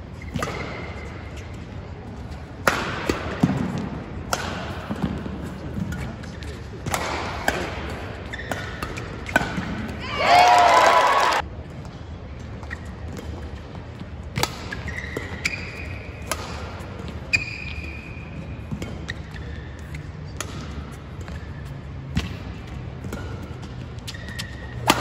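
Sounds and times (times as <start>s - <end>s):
shoes squeaking on court: 0.0s - 2.5s, 8.0s - 9.8s, 12.4s - 25.0s
low hall hum: 0.0s - 25.0s
racket striking shuttlecock: 2.6s - 5.2s, 6.8s - 10.0s, 14.3s - 17.2s, 22.1s - 25.0s.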